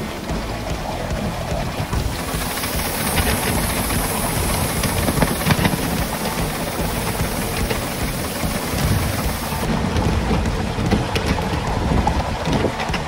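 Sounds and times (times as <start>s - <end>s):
steam hissing: 0.0s - 10.2s
steam locomotive running: 0.0s - 13.0s
wheels clicking on rails: 0.0s - 13.0s
wind rumbling on microphone: 0.0s - 13.0s.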